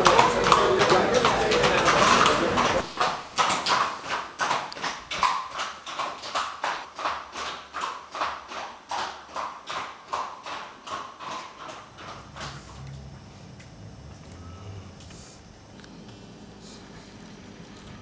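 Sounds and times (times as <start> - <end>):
horse hooves on cobblestones: 0.0 - 14.4.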